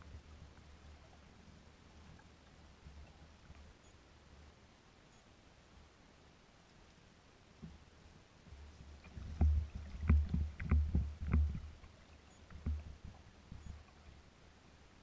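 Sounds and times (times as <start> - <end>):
waves slapping against kayak hull: 8.8 - 13.7.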